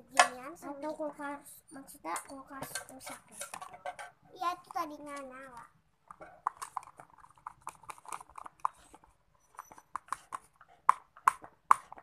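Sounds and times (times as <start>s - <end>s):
slime squelching with wet pops: 5.6s - 12.0s.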